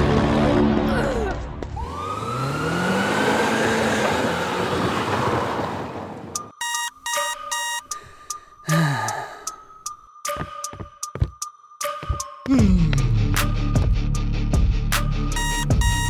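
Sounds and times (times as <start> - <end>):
short electronic beeps: 6.6 - 7.8, 15.4 - 16.0.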